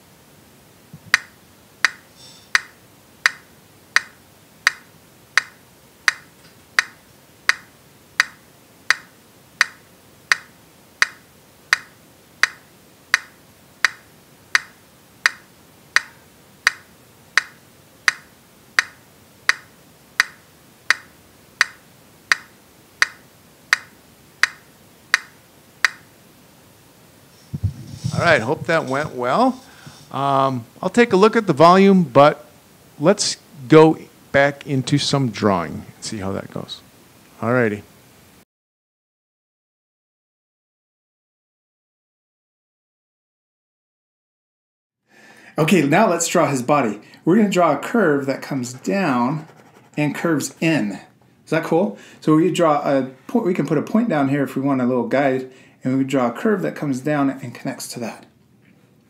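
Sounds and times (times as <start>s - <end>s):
metronome clicking: 1.1s - 26.1s.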